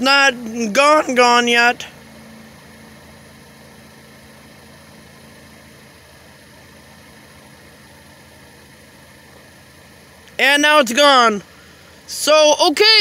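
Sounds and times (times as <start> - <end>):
low hum: 0.0 - 12.1
faint engine rumble: 0.0 - 13.0.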